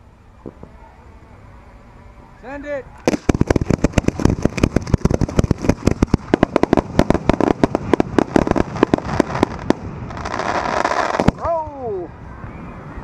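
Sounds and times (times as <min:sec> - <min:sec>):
firework crackling: 0:02.9 - 0:12.1
firework shells booming: 0:03.0 - 0:11.5.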